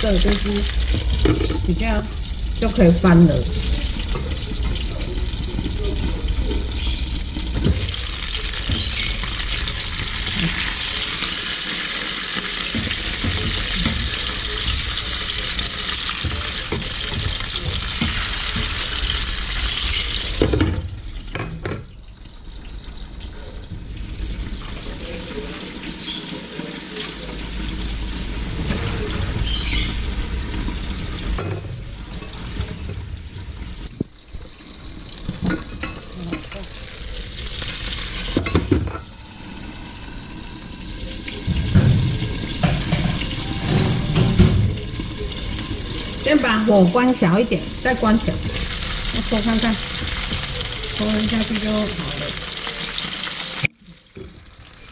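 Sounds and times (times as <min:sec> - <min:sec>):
small oil crackles: 0:00.0 - 0:20.4
fish sizzling in hot oil: 0:00.0 - 0:54.9.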